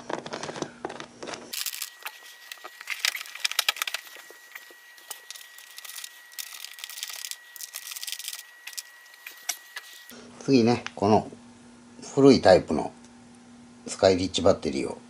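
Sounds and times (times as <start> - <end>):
faint high whine: 1.5 - 10.8.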